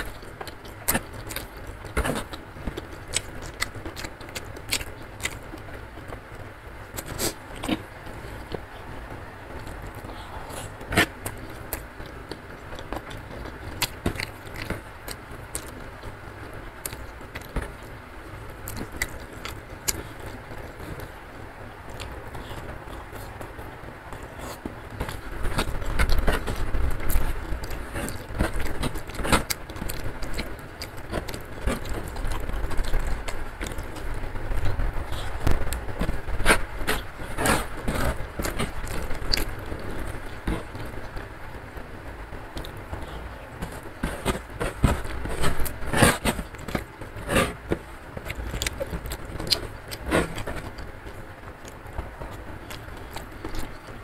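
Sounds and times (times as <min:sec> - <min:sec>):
chewing with mouth closed: 0:00.0 - 0:05.6, 0:36.8 - 0:41.0, 0:51.6 - 0:54.0.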